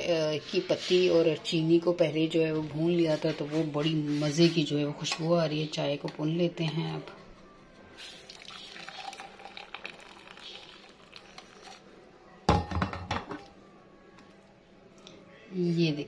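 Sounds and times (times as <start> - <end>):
liquid pouring into a mug: 8.1 - 11.9.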